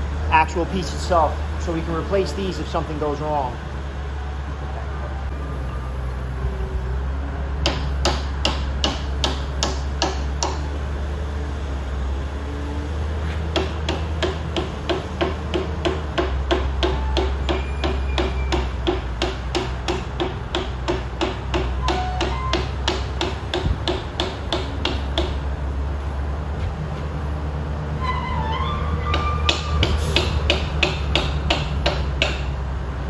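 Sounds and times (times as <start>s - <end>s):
hammer blows on steel: 13.6s - 25.3s.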